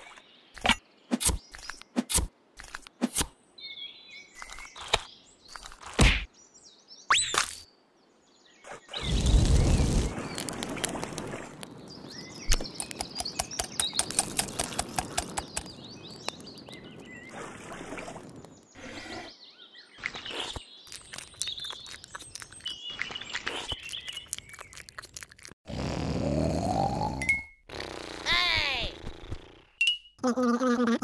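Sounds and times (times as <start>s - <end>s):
birds chirping: 6.3s - 25.2s
small clicks and taps: 12.5s - 16.5s.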